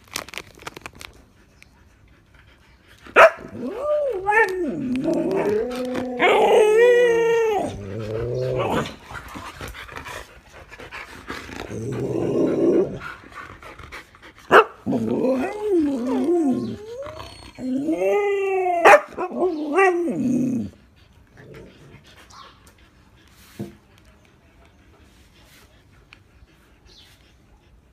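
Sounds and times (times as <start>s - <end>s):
dogs howling and whining: 3.2s - 9.2s, 11.5s - 13.2s, 14.8s - 22.0s
dog growl-like grumble: 4.5s - 6.8s, 7.4s - 9.1s, 11.5s - 13.1s, 14.8s - 18.0s, 20.0s - 22.0s.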